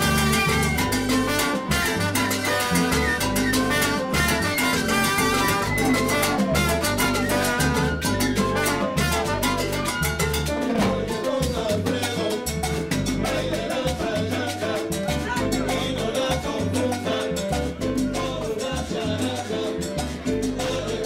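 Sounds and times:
trombone: 0:00.0 - 0:13.6
salsa band playing: 0:00.0 - 0:21.0.

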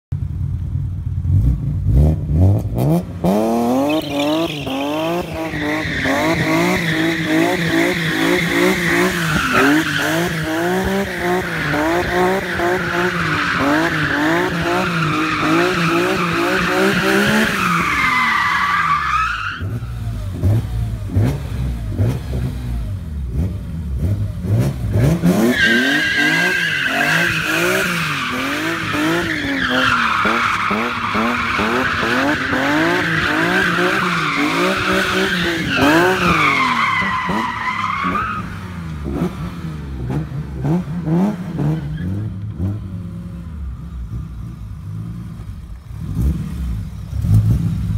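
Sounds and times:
tyres squealing: 0:03.9 - 0:10.3
car engine revving hard: 0:19.6 - 0:43.1.

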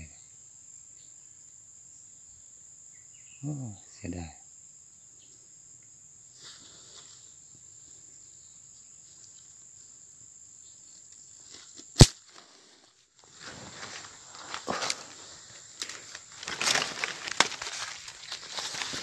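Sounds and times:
insects droning: 0:00.0 - 0:19.0
rustling and crunching leaves: 0:11.4 - 0:19.0
sharp click: 0:12.0 - 0:12.2.

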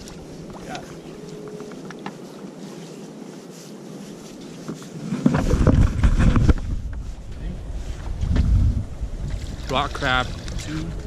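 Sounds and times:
water sloshing against hull: 0:00.0 - 0:07.2, 0:09.1 - 0:11.0
wind buffeting microphone: 0:05.0 - 0:11.0.

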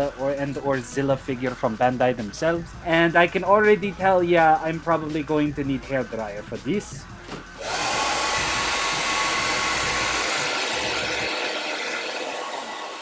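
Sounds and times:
hair dryer blowing: 0:07.6 - 0:13.0.

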